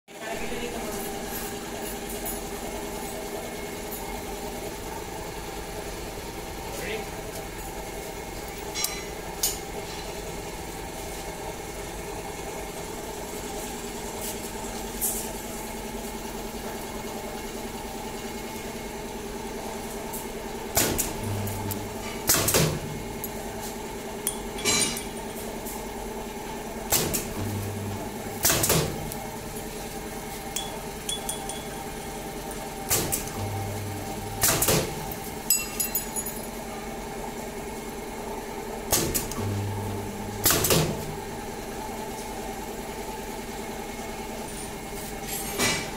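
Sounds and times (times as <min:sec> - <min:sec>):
steady machine hum: 0:00.2 - 0:45.0
low electrical weld hum: 0:00.2 - 0:45.9
cylinder clunk with air burst: 0:20.7 - 0:23.1, 0:26.9 - 0:29.1, 0:34.4 - 0:35.0, 0:38.9 - 0:39.7, 0:40.4 - 0:41.2
pneumatic clamp clack: 0:34.4 - 0:34.9.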